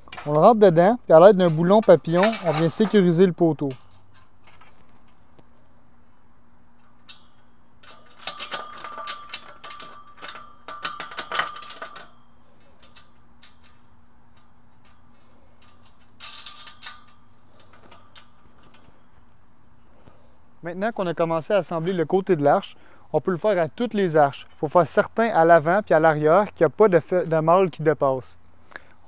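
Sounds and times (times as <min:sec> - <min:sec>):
metal tubes clinking and rattling: 0:00.0 - 0:05.2, 0:06.8 - 0:19.1.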